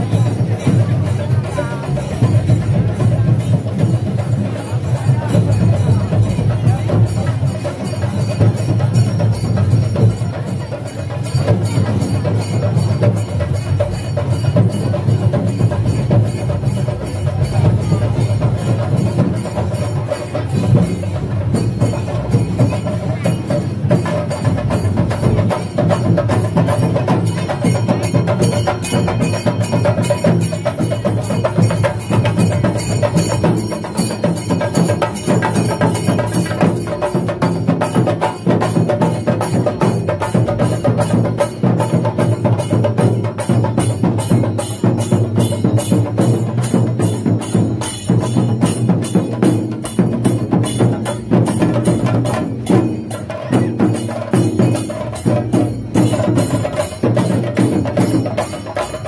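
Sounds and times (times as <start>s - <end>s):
fast drum beat: 0.0s - 59.0s.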